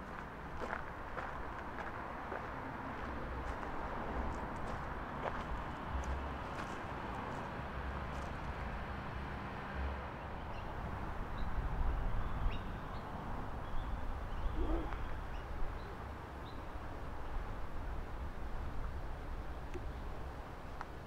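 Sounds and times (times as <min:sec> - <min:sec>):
low bird call: 0:14.3 - 0:15.2.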